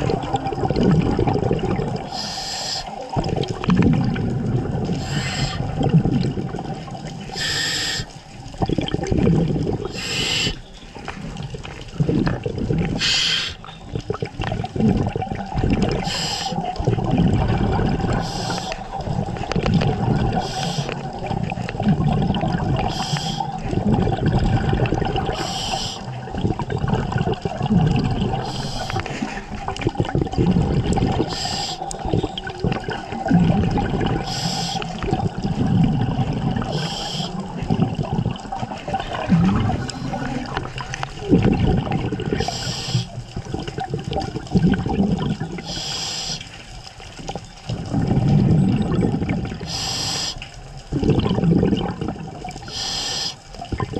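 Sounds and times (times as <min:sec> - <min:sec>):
exhaled bubbles gurgling: 0:00.0 - 0:53.9
diver inhaling through regulator: 0:02.1 - 0:03.0, 0:04.9 - 0:05.8, 0:07.3 - 0:08.2, 0:09.9 - 0:10.6, 0:13.0 - 0:13.6, 0:16.0 - 0:16.7, 0:18.1 - 0:19.0, 0:20.2 - 0:21.2, 0:22.8 - 0:23.6, 0:25.3 - 0:26.2, 0:28.4 - 0:29.6, 0:31.2 - 0:32.1, 0:34.0 - 0:35.6, 0:36.5 - 0:37.8, 0:42.2 - 0:43.2, 0:45.6 - 0:46.6, 0:49.6 - 0:50.5, 0:52.6 - 0:53.5.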